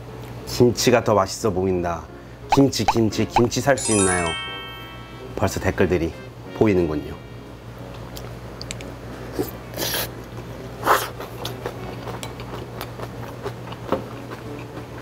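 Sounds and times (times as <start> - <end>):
person chewing: 10.9 - 15.0.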